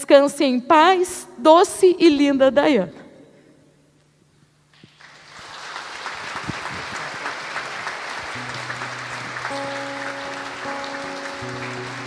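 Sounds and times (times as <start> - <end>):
congregation applauding: 4.7 - 12.0.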